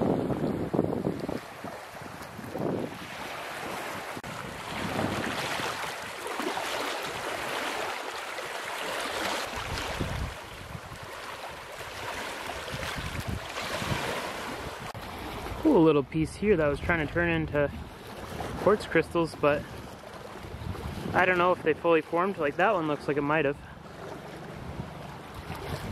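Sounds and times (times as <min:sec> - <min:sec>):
wind buffeting microphone: 0:00.0 - 0:07.8, 0:09.5 - 0:22.0, 0:23.9 - 0:25.9
waves lapping on pebbly shore: 0:00.0 - 0:15.8.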